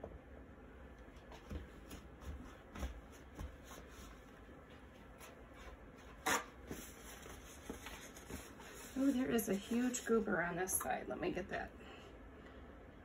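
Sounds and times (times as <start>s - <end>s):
canvas rustling: 6.2s - 10.3s.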